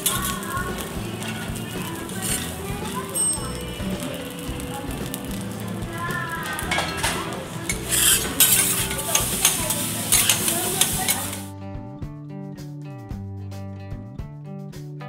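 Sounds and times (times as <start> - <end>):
rice sizzling on a griddle: 0.0 - 11.5
guitar music: 0.0 - 15.0
metal spatulas scraping and tapping: 6.4 - 11.5.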